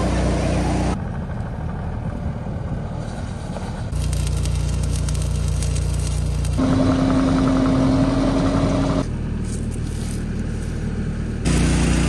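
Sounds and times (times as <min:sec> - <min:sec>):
engine running steadily: 0:00.0 - 0:12.0
welding arc crackling: 0:03.9 - 0:07.2, 0:11.4 - 0:12.0.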